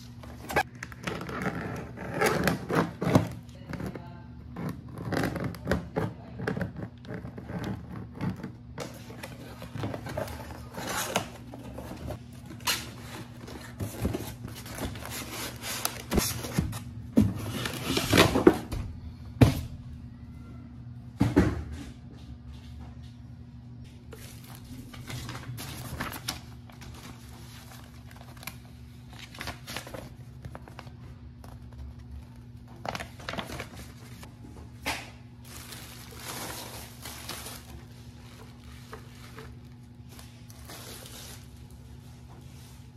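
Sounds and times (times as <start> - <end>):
paper and plastic rustling: 8.8 - 18.6, 23.9 - 34.4, 35.4 - 42.9
styrofoam packing handled: 35.4 - 41.7.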